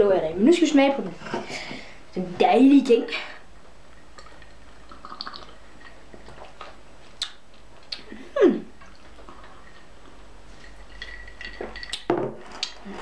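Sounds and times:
person sipping and slurping: 4.2 - 5.7
ice clinking in glass: 10.6 - 12.1.

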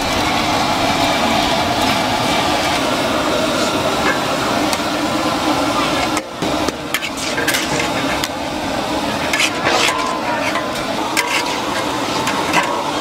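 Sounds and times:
noodles sizzling in a wok: 0.0 - 13.0
metal spatulas scraping a wok: 6.9 - 8.3, 9.2 - 13.0.

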